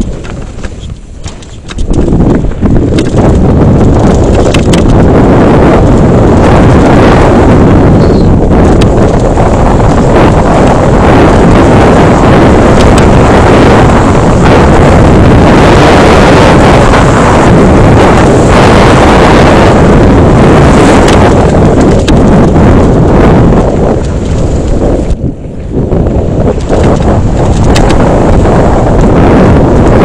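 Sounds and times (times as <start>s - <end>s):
bike clicks and knocks: 0.0s - 3.4s, 4.1s - 5.0s
tyre and frame rumble: 0.0s - 30.0s
wind buffeting camera microphone: 0.0s - 30.0s.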